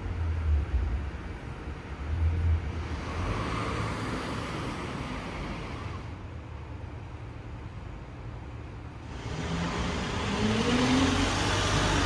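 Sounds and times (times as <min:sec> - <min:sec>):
car passing: 0:09.1 - 0:12.0.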